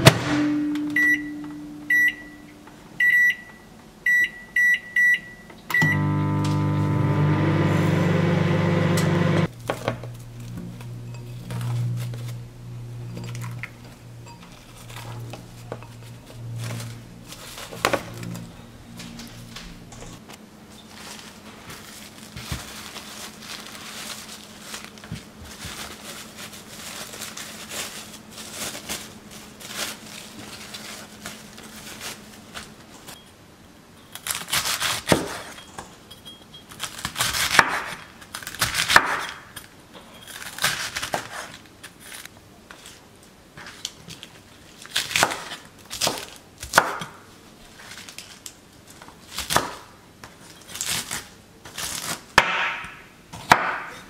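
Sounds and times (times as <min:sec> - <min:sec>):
faint handling sounds: 0:13.1 - 0:33.3.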